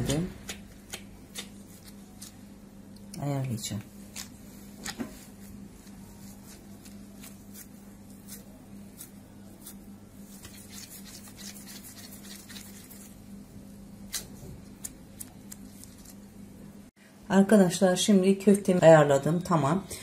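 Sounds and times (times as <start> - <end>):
steady low hum: 0.0 - 20.0
gloved hands squishing meat: 0.4 - 2.9, 3.8 - 16.4.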